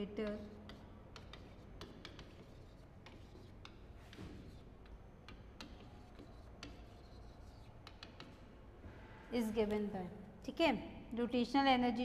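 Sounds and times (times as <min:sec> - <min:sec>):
chalk clicking on a chalkboard: 0:00.0 - 0:08.5
chalk scratching on a chalkboard: 0:00.0 - 0:08.6.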